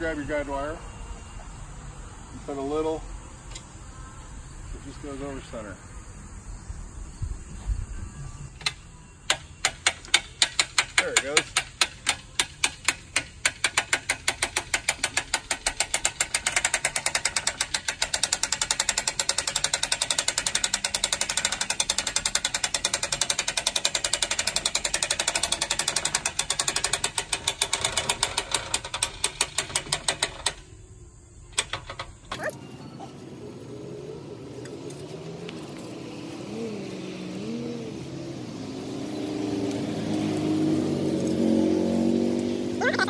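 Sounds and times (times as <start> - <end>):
hand-cranked ratchet clicking: 9.3 - 30.6.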